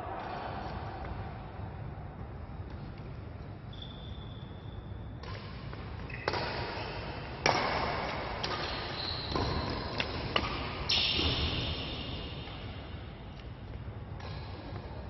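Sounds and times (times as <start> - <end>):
shoes squeaking on court floor: 2.8 - 11.8
rackets hitting shuttlecock: 5.2 - 12.8, 14.1 - 14.9.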